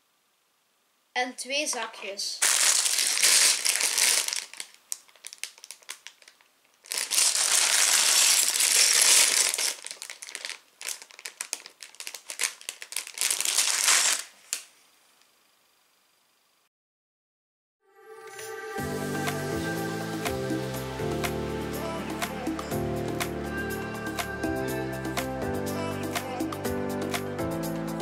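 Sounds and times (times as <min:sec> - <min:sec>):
plastic bags crinkling: 0:02.4 - 0:14.7.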